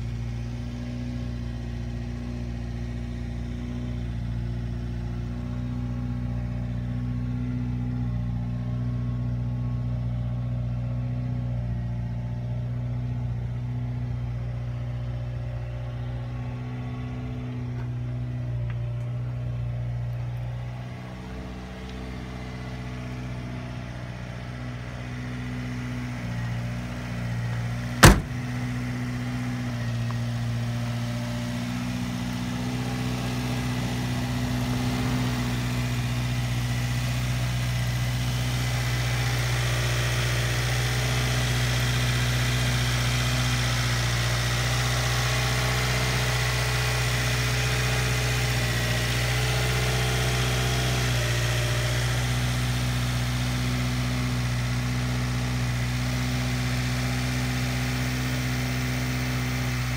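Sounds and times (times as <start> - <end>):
truck engine idling: 0.0 - 56.2
sharp knock: 28.0 - 28.5.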